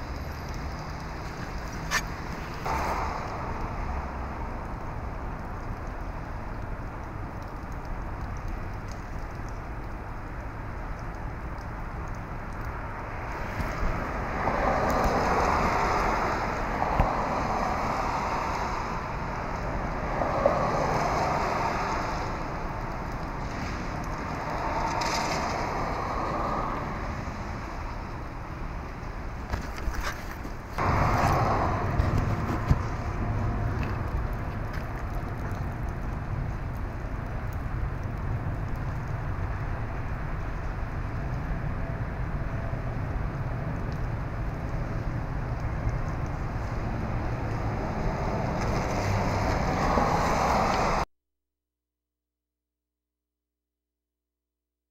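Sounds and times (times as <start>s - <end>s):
tyre hiss on wet road: 0.0s - 9.0s, 12.7s - 29.4s, 30.5s - 38.6s, 44.1s - 51.0s
low traffic rumble: 0.0s - 51.1s.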